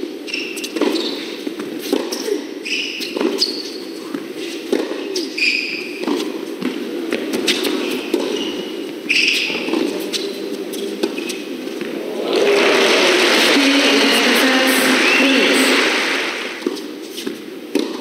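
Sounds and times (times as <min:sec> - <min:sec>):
crowd applause and cheering: 0:11.7 - 0:16.9.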